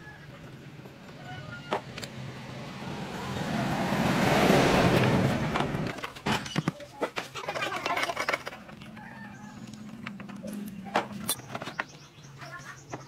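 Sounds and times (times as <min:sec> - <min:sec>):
loud rushing noise: 0:01.8 - 0:05.9.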